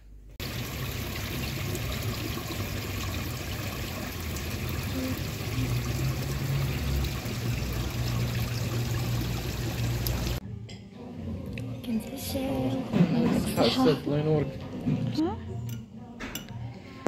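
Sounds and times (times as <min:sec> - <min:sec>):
running water rushing: 0:00.4 - 0:10.4.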